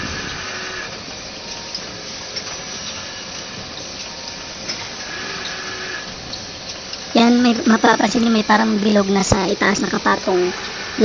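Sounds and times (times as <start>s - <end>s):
machine rushing mechanical noise: 0.0s - 11.0s.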